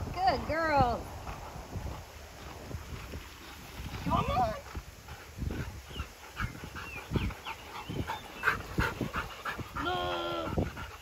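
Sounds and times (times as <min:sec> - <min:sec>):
dog panting hard: 0:04.6 - 0:11.0.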